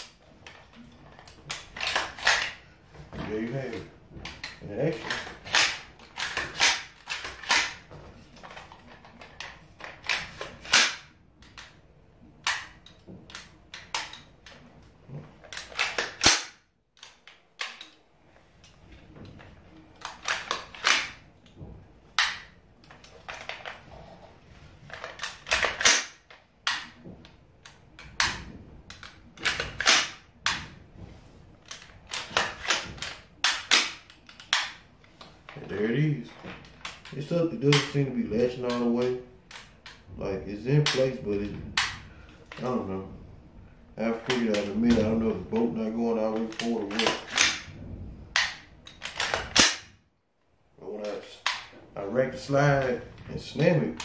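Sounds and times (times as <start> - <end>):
rifle bolt metallic clacks: 24.9 - 27.0.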